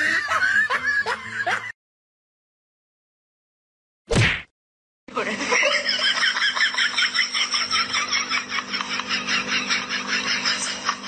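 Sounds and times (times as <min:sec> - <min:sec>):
laughter: 0:00.0 - 0:01.8, 0:05.1 - 0:11.0.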